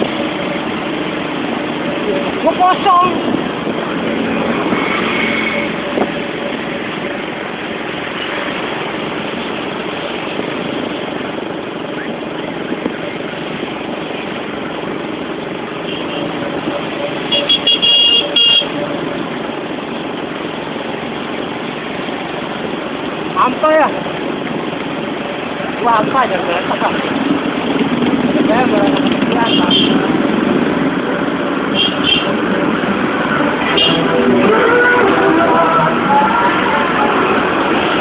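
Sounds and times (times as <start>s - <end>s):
wind noise: 0.0s - 17.3s, 19.1s - 38.0s
vehicle horn toots: 17.3s - 18.8s, 29.5s - 30.0s, 31.7s - 32.4s, 33.7s - 35.4s
motorcycle engine: 26.8s - 38.0s.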